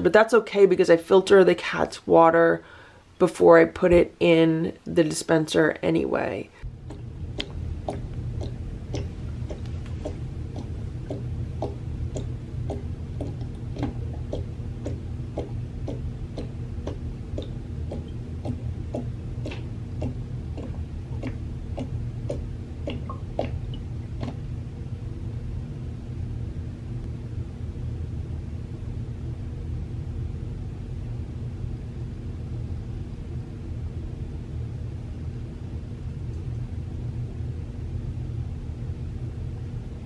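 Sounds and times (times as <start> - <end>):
low steady hum: 0.0 - 40.0
cat lapping water: 6.7 - 24.4.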